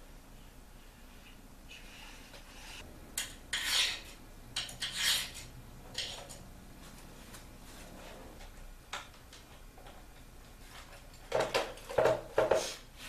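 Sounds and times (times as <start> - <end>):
rustling and clatter of parts: 8.3 - 12.8.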